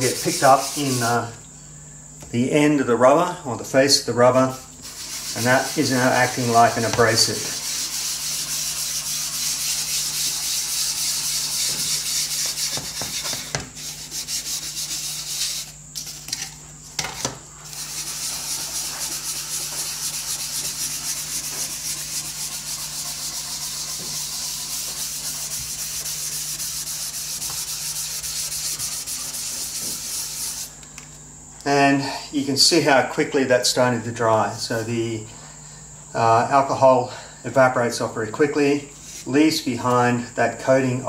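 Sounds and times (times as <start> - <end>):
gritty rubbing on wood: 0.0 - 1.3, 4.2 - 16.4, 17.7 - 30.8.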